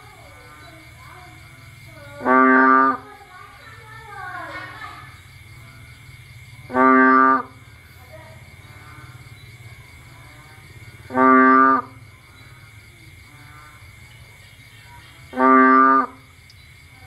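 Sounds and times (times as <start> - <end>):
bullfrog calling: 0.0 - 3.2, 5.1 - 16.8.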